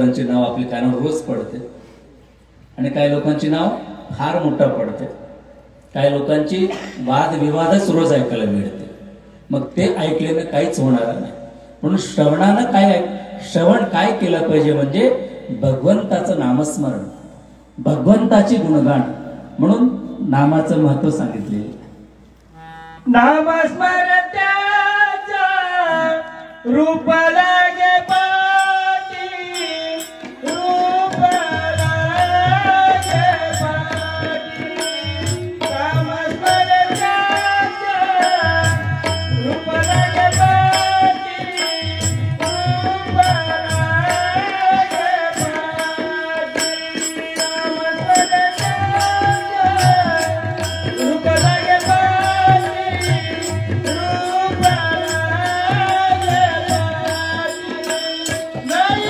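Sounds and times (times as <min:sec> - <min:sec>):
drum beating: 0:29.2 - 0:59.0.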